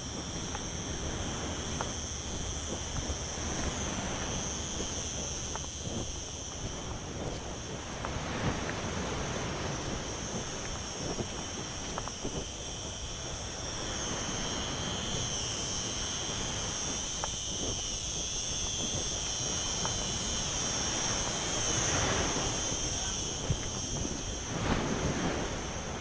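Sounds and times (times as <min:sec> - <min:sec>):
high-pitched buzz: 0:00.0 - 0:26.0
wind: 0:00.0 - 0:26.0
surf: 0:20.1 - 0:26.0.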